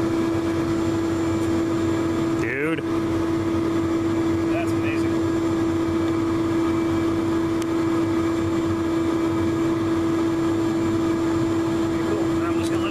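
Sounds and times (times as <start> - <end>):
mechanical hum: 0.0 - 12.9.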